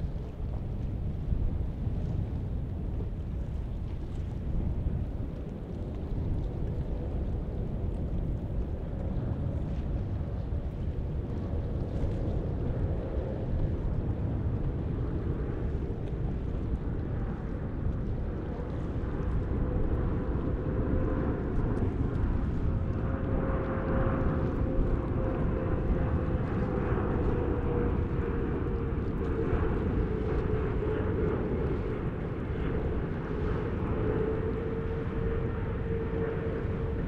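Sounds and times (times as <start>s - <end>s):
jet engines rumbling and whining: 19.4s - 37.0s.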